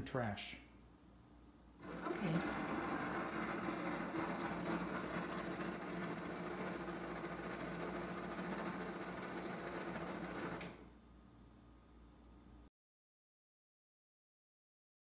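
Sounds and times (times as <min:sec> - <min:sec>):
electric motor whirring: 0:01.8 - 0:10.8.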